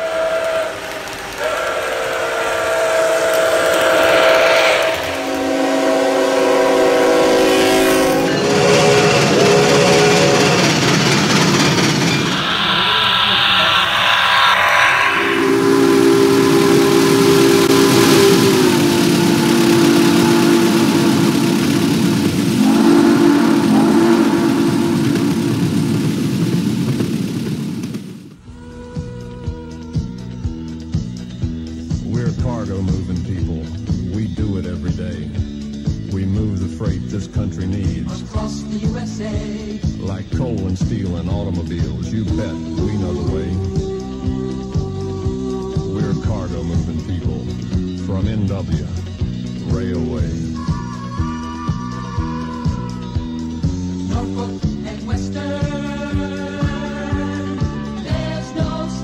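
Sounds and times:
train whistle blowing: 0:00.0 - 0:26.3
train running noise: 0:00.0 - 0:28.5.

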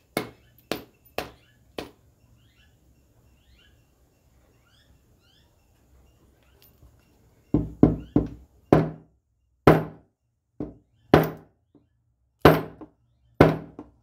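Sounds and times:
sharp ringing metal knocks: 0:00.1 - 0:02.0, 0:07.5 - 0:09.1, 0:09.7 - 0:11.5, 0:12.4 - 0:14.0.

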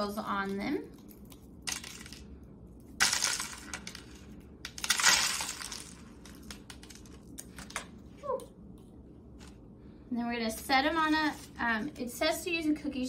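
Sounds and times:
sprinkles rattling onto plastic plate: 0:03.0 - 0:07.4.

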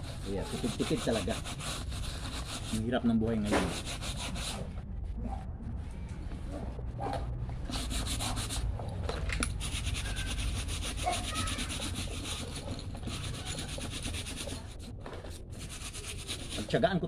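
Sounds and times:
scrub brush scrubbing fabric: 0:00.0 - 0:02.8, 0:09.6 - 0:14.9, 0:15.6 - 0:16.8.

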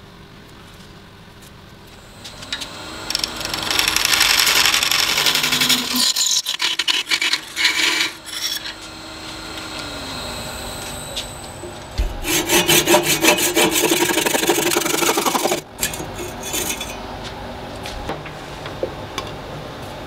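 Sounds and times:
lathe motor whining: 0:02.0 - 0:15.7
turning tool scraping wood: 0:02.0 - 0:17.0.

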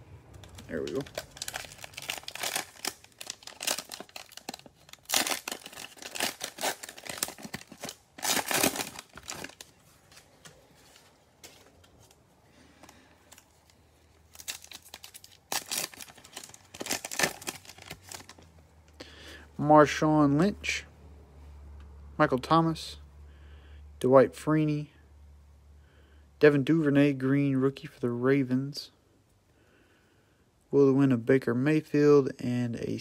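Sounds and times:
foil wrappers crinkling and tearing: 0:00.4 - 0:11.7, 0:12.8 - 0:18.4.

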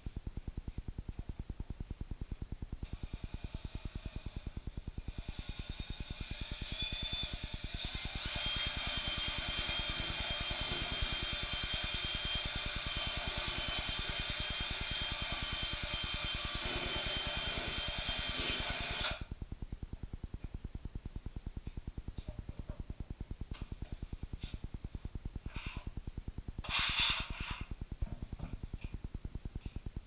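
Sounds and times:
drill motor whine: 0:02.8 - 0:19.3.

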